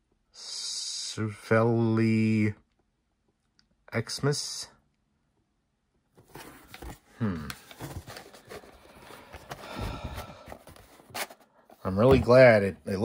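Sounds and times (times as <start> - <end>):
cardboard and plastic rustling: 6.2 - 12.7.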